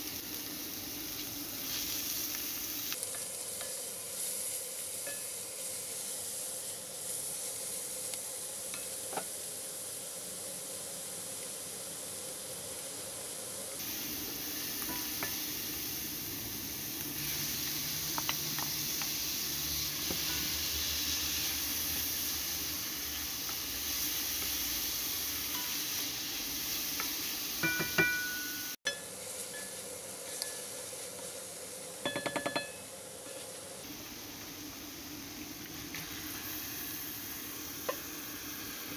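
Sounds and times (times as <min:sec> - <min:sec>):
food sizzling in oil: 0:00.0 - 0:38.9
spatula tapping pan: 0:27.0 - 0:29.0, 0:32.1 - 0:32.8.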